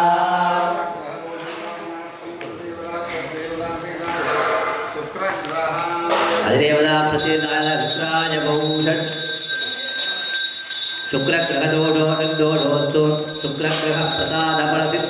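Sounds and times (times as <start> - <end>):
priests chanting: 0.0 - 5.2, 6.0 - 15.0
handheld bell ringing: 7.2 - 15.0.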